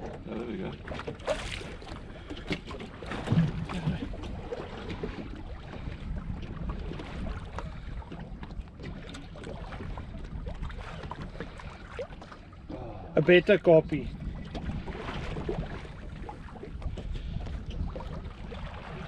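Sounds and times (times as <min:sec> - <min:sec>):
sea noise: 0:00.0 - 0:19.0
wind: 0:00.0 - 0:19.0
dull knocks on boat: 0:01.0 - 0:05.2.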